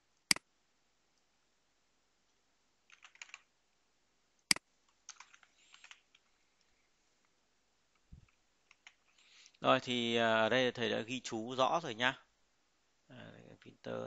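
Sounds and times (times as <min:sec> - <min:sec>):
computer keyboard keystrokes: 0:02.9 - 0:03.4, 0:04.5 - 0:06.1, 0:08.7 - 0:09.0.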